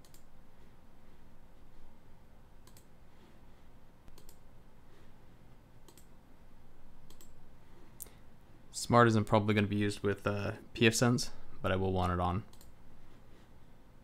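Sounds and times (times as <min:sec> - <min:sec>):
computer mouse clicks: 0:00.0 - 0:00.3, 0:02.6 - 0:02.9, 0:04.0 - 0:04.4, 0:05.8 - 0:06.2, 0:07.0 - 0:07.4, 0:12.0 - 0:12.8
faint low hum: 0:00.0 - 0:14.0.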